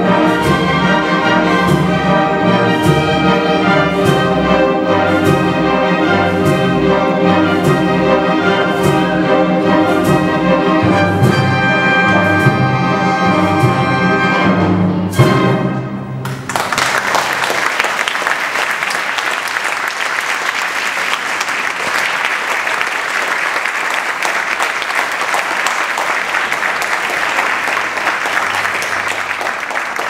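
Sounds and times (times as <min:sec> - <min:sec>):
audience applauding: 0:16.2 - 0:30.0.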